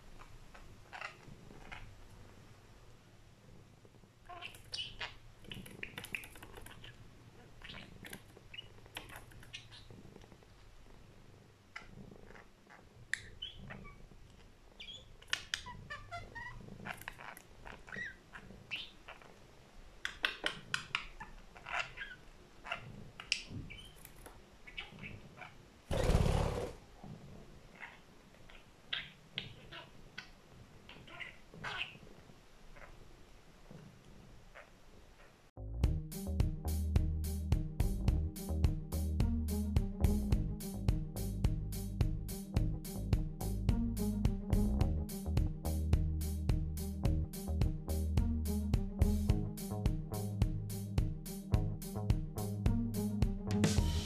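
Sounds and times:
budgerigar chattering and warbling: 20.1 - 24.1, 30.9 - 32.0
bird wingbeats: 25.9 - 26.8.

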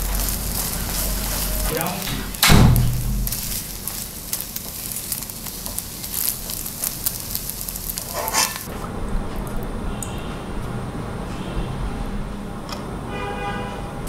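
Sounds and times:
spatula scraping a pan: 0.0 - 1.7, 7.4 - 8.7
low steady hum: 0.0 - 4.5
egg sizzling in a frying pan: 0.0 - 8.7.

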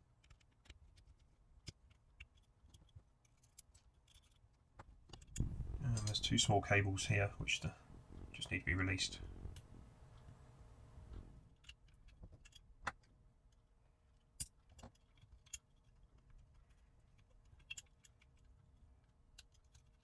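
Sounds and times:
metal tweezers clicking on connectors: 5.1 - 6.3.

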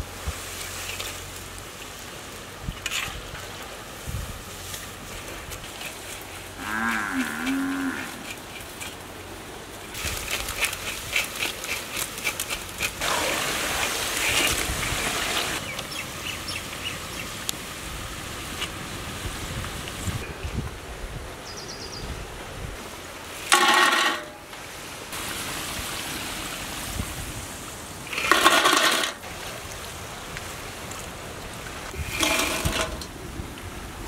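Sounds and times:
cow mooing: 6.6 - 8.2.

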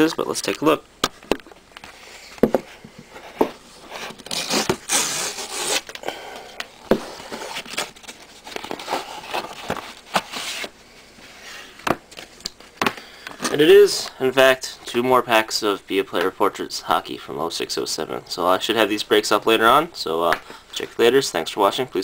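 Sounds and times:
paper envelope rustling and tearing: 3.9 - 6.0, 7.1 - 10.7.

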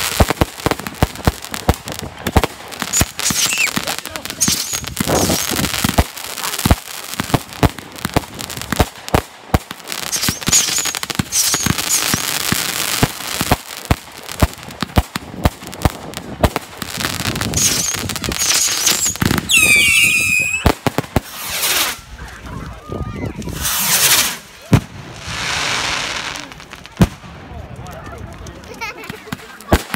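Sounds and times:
fireworks bangs and crackles: 0.0 - 29.9
descending firework whistles: 2.9 - 3.8, 4.4 - 5.6, 10.1 - 12.4, 17.5 - 22.0.

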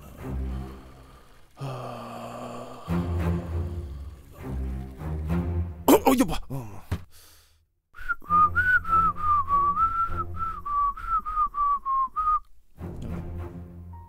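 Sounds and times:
man whistling a tune: 8.0 - 12.5.

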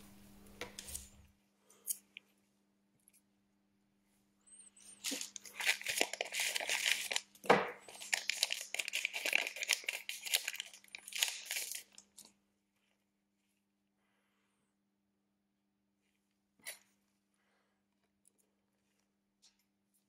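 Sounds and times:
plastic film crinkling and tearing: 5.0 - 12.3.

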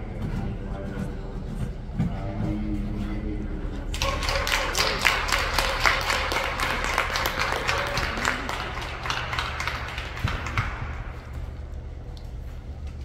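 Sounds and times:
steady low hum: 0.0 - 13.0
spectators clapping: 3.9 - 11.6.

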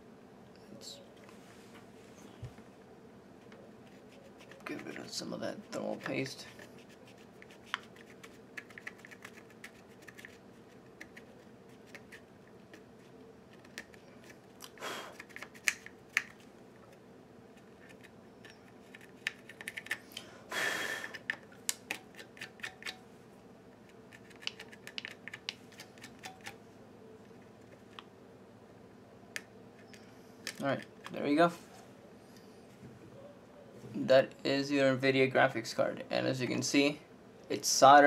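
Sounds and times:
pencil scraping chip: 3.8 - 14.4.

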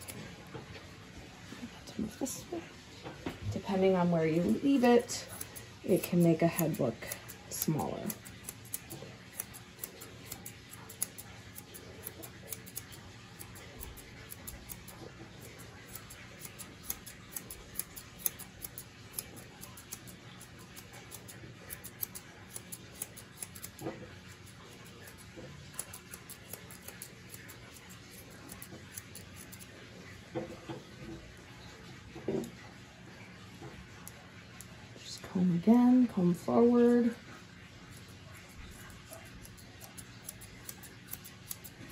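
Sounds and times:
grooming shears snipping: 0.0 - 0.6, 4.4 - 29.7, 37.9 - 41.9.

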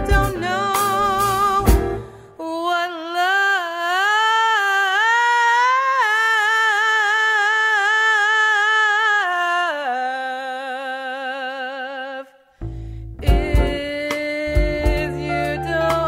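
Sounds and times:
drums: 0.0 - 2.2, 13.2 - 16.0
bass: 0.0 - 2.3, 12.6 - 16.0
woman singing jazz: 0.0 - 12.3, 13.2 - 16.0.

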